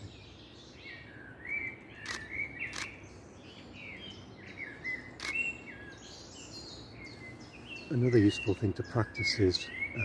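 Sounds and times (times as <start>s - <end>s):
small birds chirping: 0.0s - 10.0s
camera shutter clicks: 2.0s - 3.0s, 5.2s - 5.4s.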